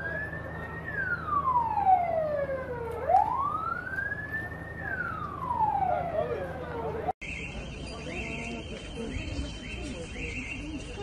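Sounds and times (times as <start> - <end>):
emergency siren wailing: 0.0 - 8.6.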